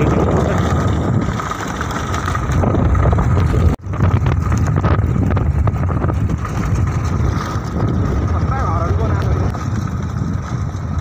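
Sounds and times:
motorcycle engine running: 0:00.0 - 0:11.0
wind rumble on microphone: 0:00.0 - 0:11.0.

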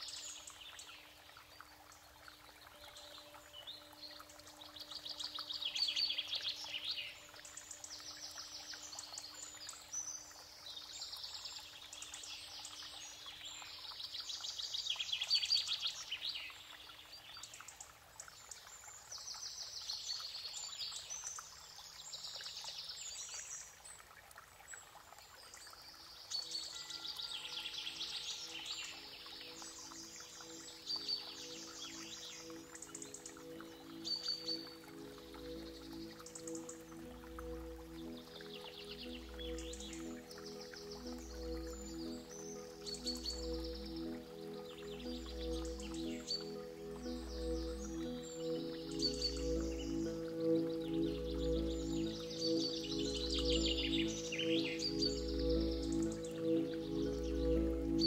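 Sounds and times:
low sustained music tone: 0:00.0 - 0:58.0
songbirds trilling: 0:26.4 - 0:58.0.

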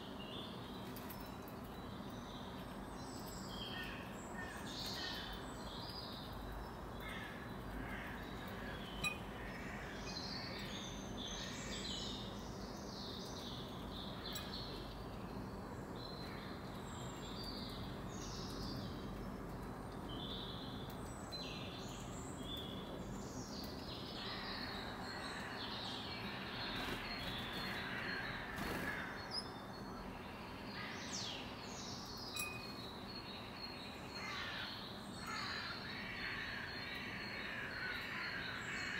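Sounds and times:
steady background noise: 0:00.0 - 0:38.9
birds chirping and calling: 0:21.6 - 0:38.9.

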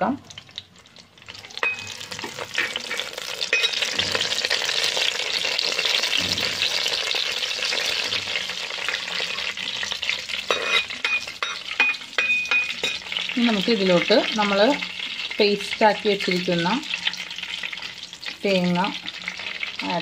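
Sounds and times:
leaves sizzling in hot oil: 0:00.2 - 0:20.0
metal spoon scraping pot: 0:01.6 - 0:04.7, 0:10.4 - 0:13.2.

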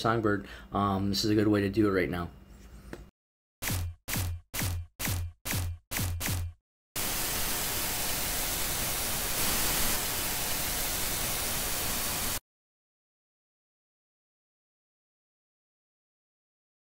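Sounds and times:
tv static hiss: 0:07.0 - 0:12.4.

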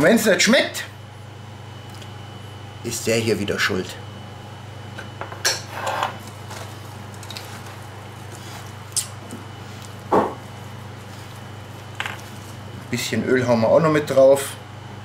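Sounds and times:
hands kneading meat in a bowl: 0:06.2 - 0:13.1
glass bottle thump on board: 0:10.1 - 0:10.4
tin set down on wooden board: 0:10.1 - 0:10.4.

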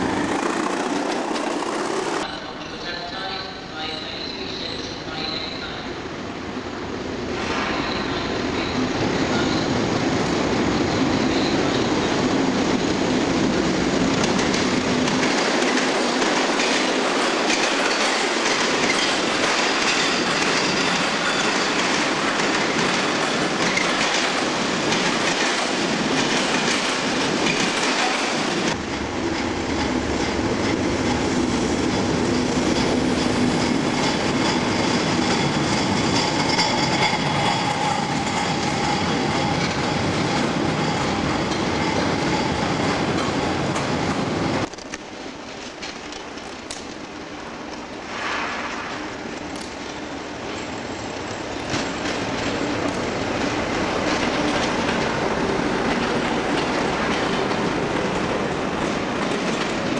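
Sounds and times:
wagon wheels clattering on rail joints: 0:00.0 - 0:02.3.

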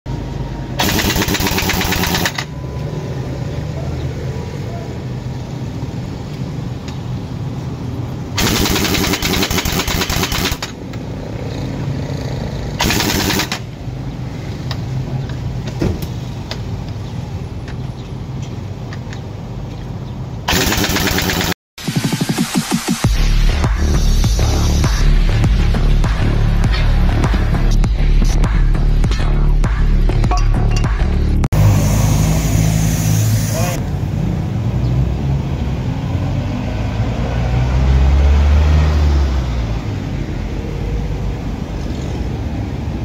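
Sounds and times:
engine hum: 0:23.2 - 0:43.0.

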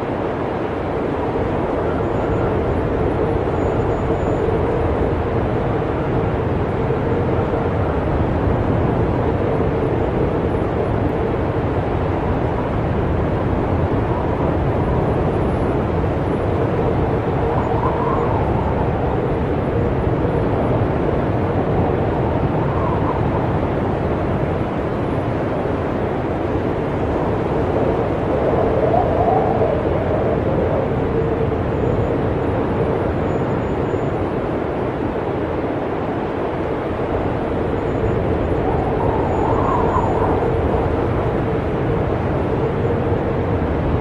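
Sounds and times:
faint wind howl: 0:00.0 - 0:44.0
snowstorm wind rushing: 0:00.0 - 0:44.0.

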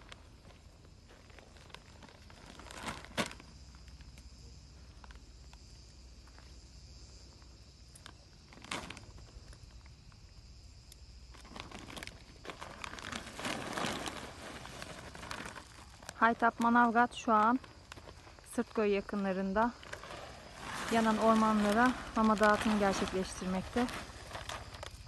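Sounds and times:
plastic sack crinkling: 0:00.0 - 0:04.0, 0:08.5 - 0:09.6, 0:11.3 - 0:25.0
kibble pouring onto ground: 0:11.4 - 0:16.2.

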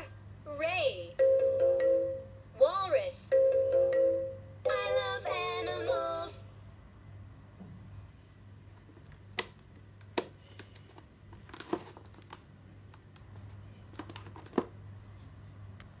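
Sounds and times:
low steady hum: 0:00.0 - 0:16.0
packaging clicks and taps: 0:13.9 - 0:14.7.

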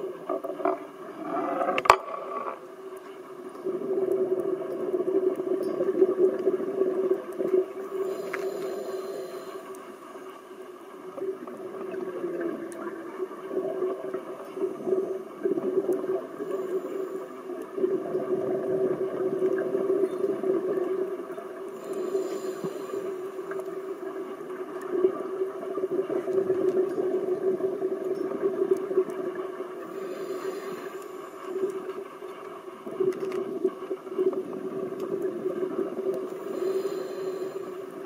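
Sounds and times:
low underwater drone: 0:00.0 - 0:38.0
scuba regulator hiss: 0:08.0 - 0:09.7, 0:21.8 - 0:23.3, 0:30.0 - 0:31.3, 0:36.4 - 0:37.8.

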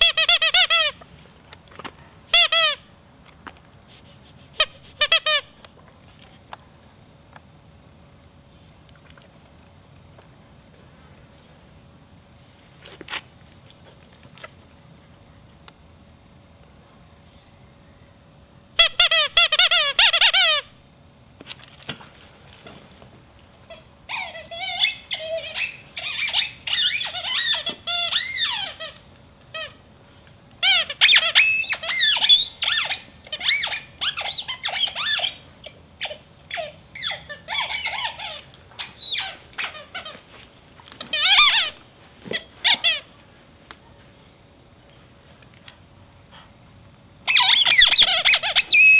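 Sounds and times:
squeaky dog toy squeaking: 0:00.0 - 0:01.0, 0:02.3 - 0:02.8, 0:04.6 - 0:05.5, 0:18.8 - 0:20.6, 0:23.7 - 0:29.8, 0:30.6 - 0:40.2, 0:41.1 - 0:43.0, 0:47.3 - 0:48.9.

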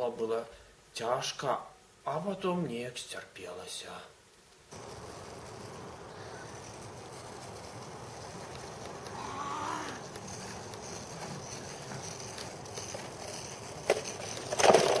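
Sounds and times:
caster board rolling on asphalt: 0:04.7 - 0:15.0.

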